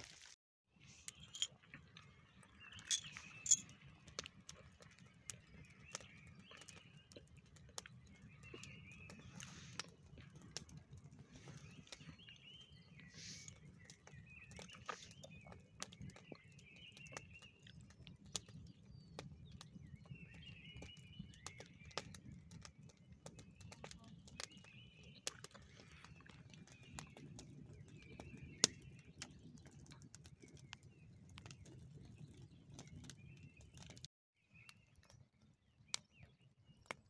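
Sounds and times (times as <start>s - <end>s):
birds chirping: 1.0s - 37.0s
campfire crackling and popping: 1.2s - 35.2s.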